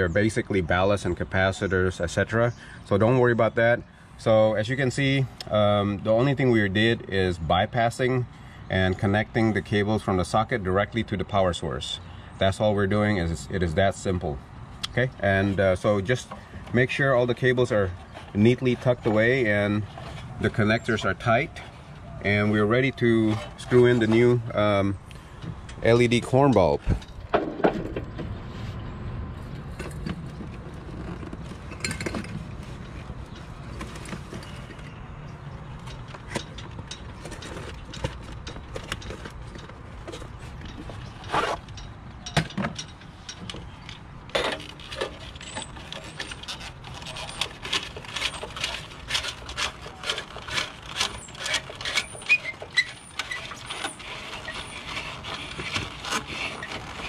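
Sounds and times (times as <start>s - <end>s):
bulb handling clicks and scrapes: 35.7s - 57.0s.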